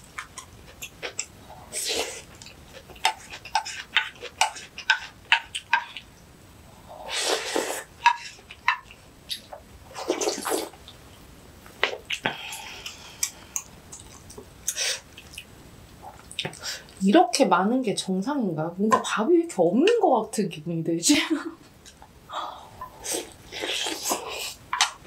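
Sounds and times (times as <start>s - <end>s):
woman slurping soup: 7.0s - 7.9s.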